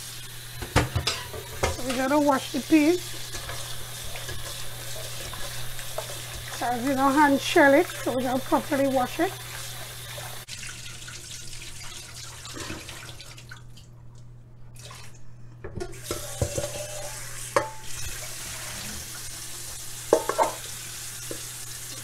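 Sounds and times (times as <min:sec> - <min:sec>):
tap running into steel bowl: 0:00.6 - 0:02.0, 0:15.6 - 0:16.9, 0:20.1 - 0:21.5
metal clanks in sink: 0:00.6 - 0:02.2, 0:15.7 - 0:17.9, 0:20.1 - 0:20.7.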